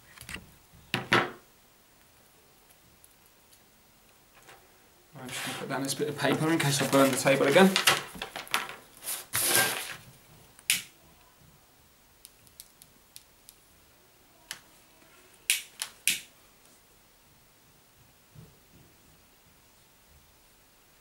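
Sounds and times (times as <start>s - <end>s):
paper rustling: 5.2s - 10.0s.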